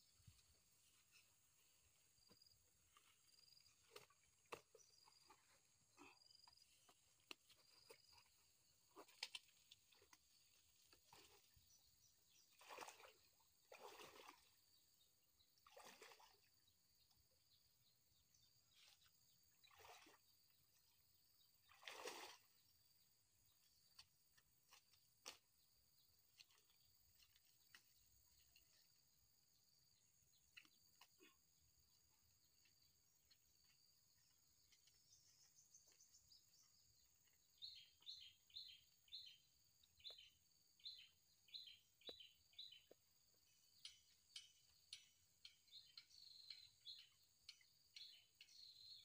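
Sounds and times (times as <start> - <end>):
footsteps sloshing through water: 0.0 - 16.6, 18.4 - 39.0.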